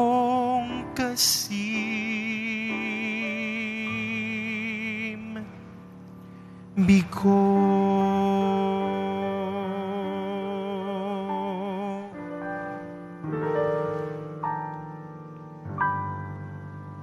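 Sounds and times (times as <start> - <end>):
sustained keyboard chords: 0.0 - 17.0.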